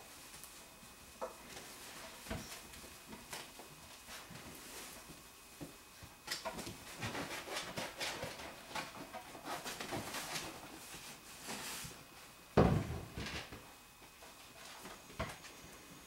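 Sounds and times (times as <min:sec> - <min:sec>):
puppies' paws and toys clicking: 0:01.5 - 0:11.0.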